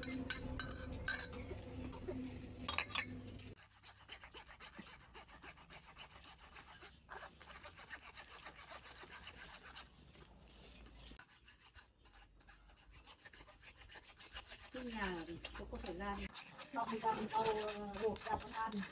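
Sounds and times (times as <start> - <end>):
metal spoon scraping wire strainer: 0.0 - 2.0, 14.7 - 18.9.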